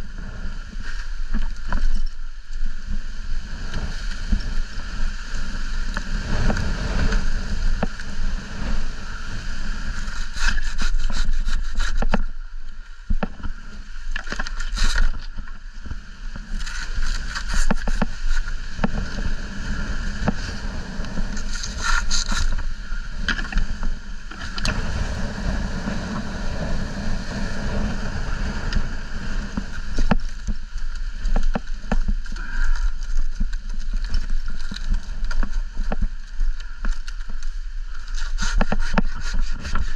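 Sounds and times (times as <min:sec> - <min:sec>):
wind buffeting microphone: 0:00.0 - 0:39.9
hand saw cutting dry fronds: 0:09.8 - 0:12.4, 0:16.4 - 0:19.3, 0:20.2 - 0:24.8, 0:37.9 - 0:39.9.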